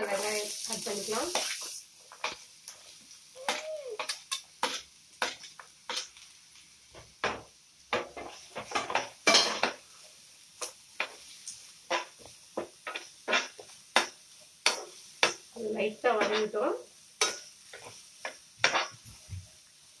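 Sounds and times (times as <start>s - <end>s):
utensil scraping frying pan: 0.0s - 6.2s, 7.0s - 9.9s, 10.6s - 15.4s, 16.0s - 19.2s
onions sauteing: 0.0s - 20.0s.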